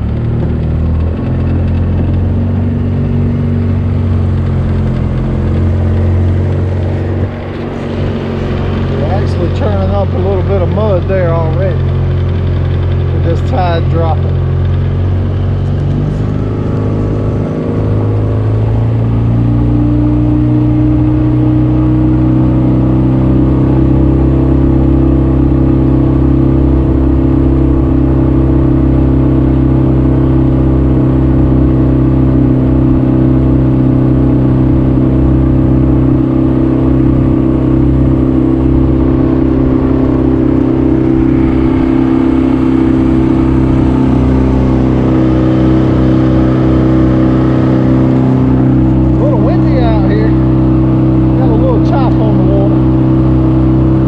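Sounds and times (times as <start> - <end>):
boat motor running: 0.0 - 54.0.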